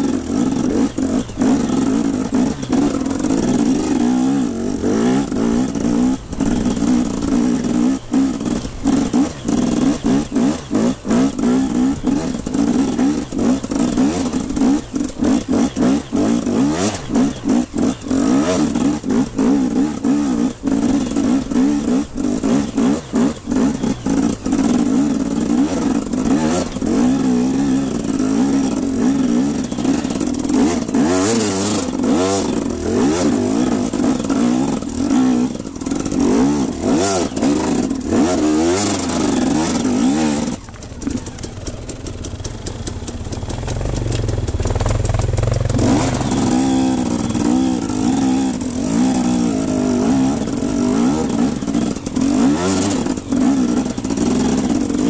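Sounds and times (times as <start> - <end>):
dirt bike engine revving: 0.0 - 55.0
rocks and bike clattering: 23.4 - 55.0.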